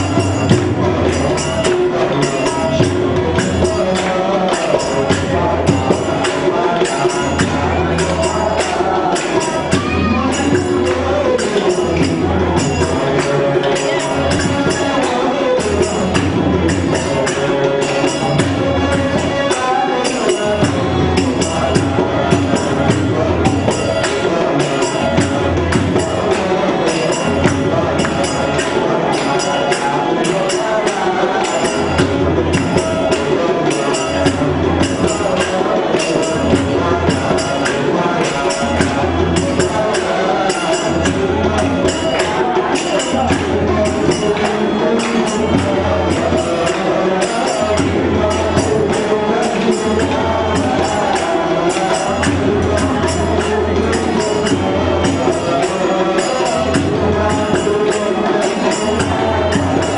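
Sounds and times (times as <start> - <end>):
hand drum fast beat: 0.0 - 59.9
harmonium: 0.0 - 59.9
jingling percussion: 0.0 - 59.9.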